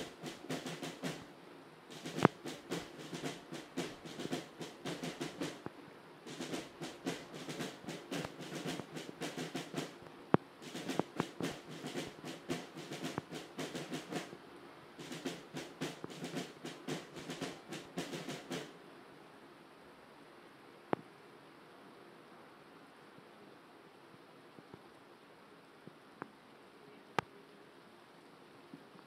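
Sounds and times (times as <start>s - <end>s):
snare drums marching cadence: 0.0s - 1.3s, 1.9s - 5.7s, 6.3s - 10.0s, 10.6s - 14.4s, 15.0s - 18.8s.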